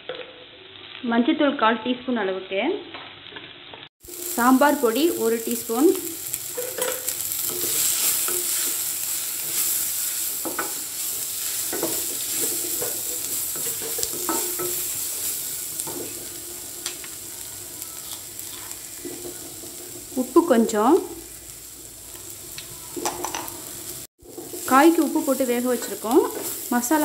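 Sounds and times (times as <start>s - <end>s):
beans sizzling in oil: 0.0s - 1.7s, 2.8s - 27.0s
spatula scraping and knocking pan: 6.3s - 17.2s, 18.0s - 20.2s, 22.2s - 27.0s.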